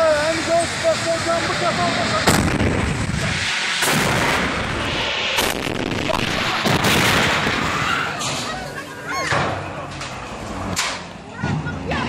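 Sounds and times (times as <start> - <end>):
loud explosion blasts: 1.7 - 8.2
rumbling roar: 1.8 - 8.5.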